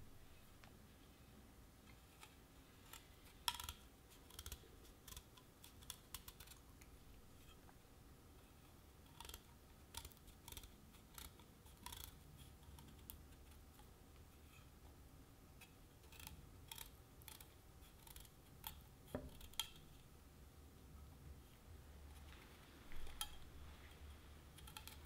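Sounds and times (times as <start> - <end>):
knife scraping chestnut skin: 2.2 - 6.6, 24.5 - 25.0.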